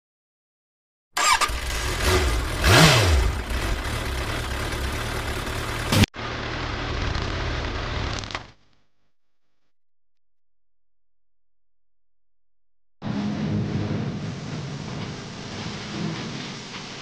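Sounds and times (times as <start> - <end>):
motorcycle engines idling: 1.2 - 8.4.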